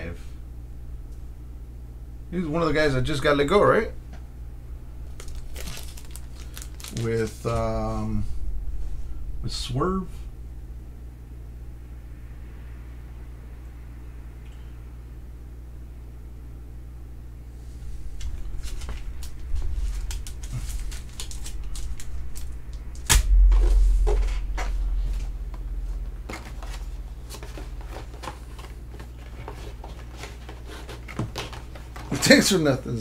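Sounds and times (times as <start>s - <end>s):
low rumble: 4.4s - 16.0s, 17.8s - 27.8s
loud thump: 23.1s - 25.0s.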